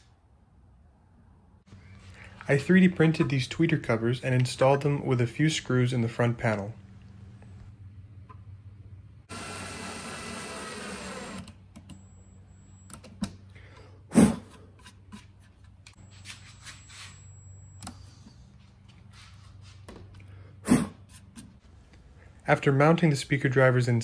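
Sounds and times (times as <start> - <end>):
cordless drill driving a screw: 9.3 - 12.6.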